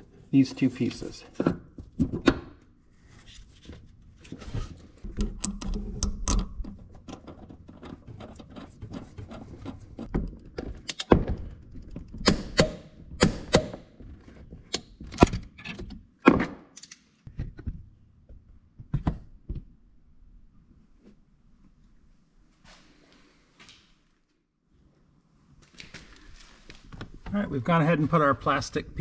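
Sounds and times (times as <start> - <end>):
metal clicks and knocks: 5.0 - 13.8.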